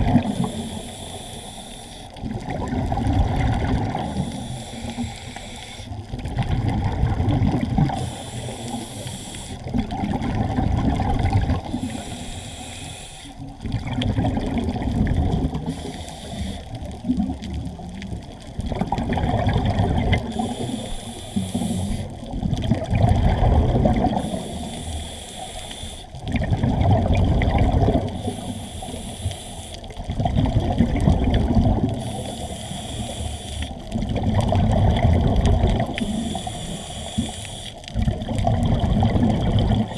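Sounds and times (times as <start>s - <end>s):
exhaled air bubbling: 0.0s - 39.9s
regulator inhale hiss: 0.1s - 2.2s, 4.0s - 6.0s, 7.9s - 9.8s, 11.6s - 13.5s, 15.6s - 16.9s, 20.2s - 22.2s, 24.1s - 26.2s, 28.1s - 30.0s, 31.9s - 33.9s, 35.8s - 37.9s.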